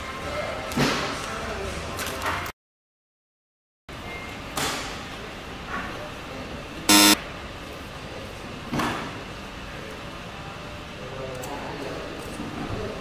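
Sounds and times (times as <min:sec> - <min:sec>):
wrong answer buzzer: 0:06.9 - 0:07.2.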